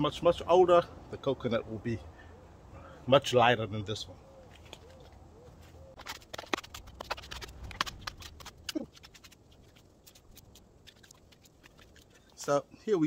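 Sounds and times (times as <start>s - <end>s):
coconut husk cracking and snapping: 5.9s - 12.2s.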